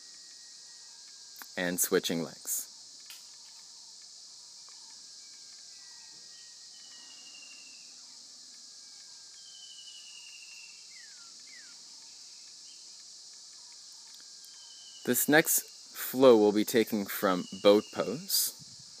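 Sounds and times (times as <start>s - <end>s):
high-pitched insect chorus: 0.0s - 19.0s
birds whistling: 5.7s - 7.9s, 9.3s - 12.9s, 13.6s - 15.2s, 17.1s - 18.6s.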